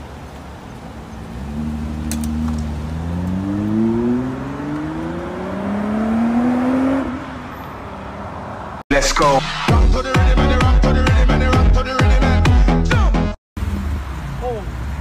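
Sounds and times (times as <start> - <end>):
car engine accelerating hard: 1.2 - 7.4.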